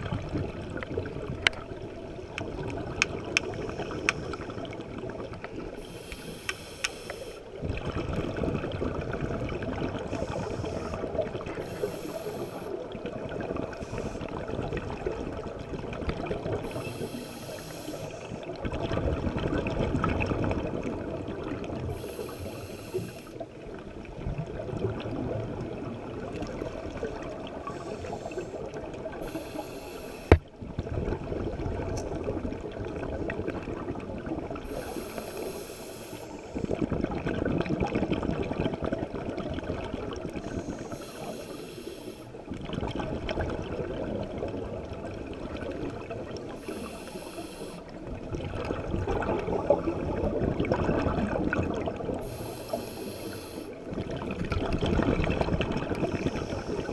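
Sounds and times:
exhaled air bubbling: 0.0 - 56.9
regulator inhalation hiss: 5.8 - 7.5, 11.6 - 12.8, 16.7 - 18.4, 21.9 - 23.4, 29.2 - 30.4, 34.7 - 36.6, 40.4 - 42.4, 46.6 - 47.9, 52.2 - 53.8.

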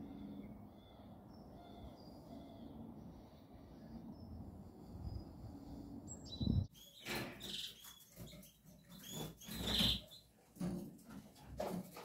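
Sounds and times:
quiet outdoor ambience: 0.0 - 12.0
canaries chirping: 6.1 - 10.3.

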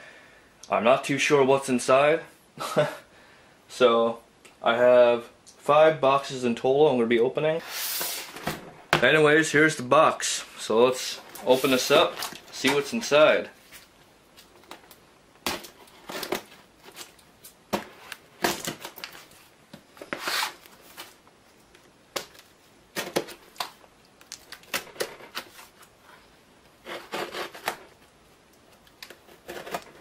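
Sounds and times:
cardboard rustling: 10.9 - 28.0.

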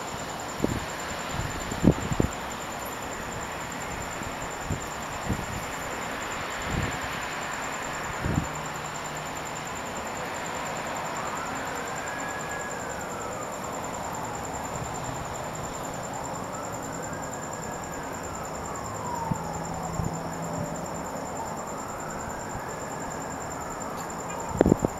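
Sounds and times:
high insect trill: 0.0 - 24.9
siren wailing: 9.8 - 24.9.

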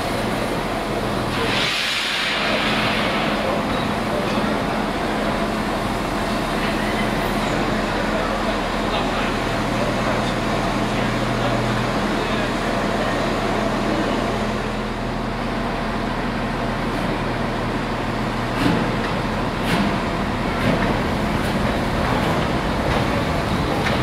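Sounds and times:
steam hissing: 0.9 - 7.6
locomotive low rumble: 2.5 - 24.0.

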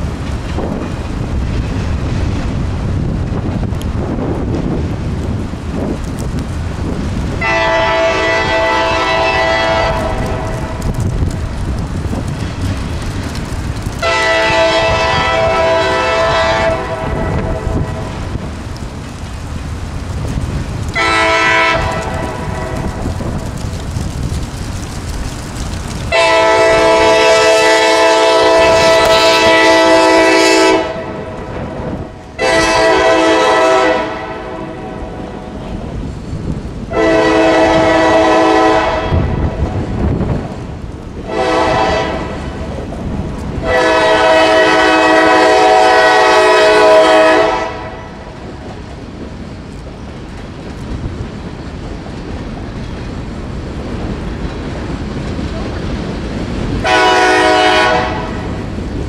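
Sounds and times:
train running rumble: 0.0 - 59.0
locomotive air horn blasts: 7.4 - 10.6, 14.0 - 18.2, 21.0 - 22.9, 26.1 - 31.3, 32.4 - 35.2, 36.9 - 39.5, 41.3 - 42.4, 43.6 - 48.2, 56.8 - 58.4.

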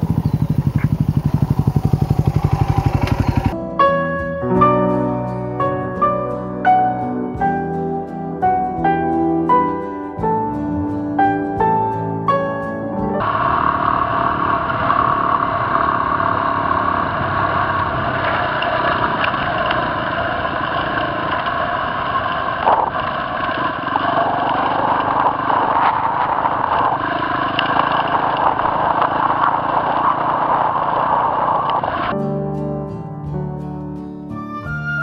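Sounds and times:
motorcycle engine running: 0.0 - 3.6, 13.2 - 32.1.

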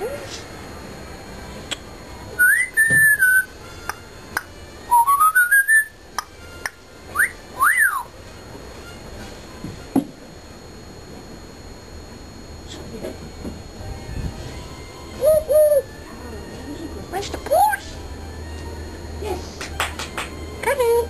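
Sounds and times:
parrot whistling: 2.4 - 3.6, 4.9 - 6.0, 7.1 - 8.1, 15.1 - 16.0.

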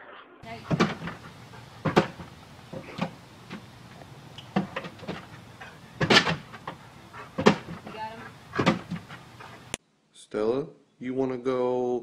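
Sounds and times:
dog paws knocking on door: 0.4 - 3.8, 4.5 - 6.8, 7.4 - 9.2.

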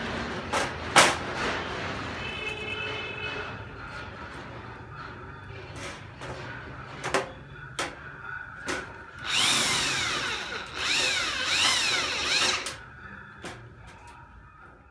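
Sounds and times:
electric drill boring into metal: 9.2 - 12.8.

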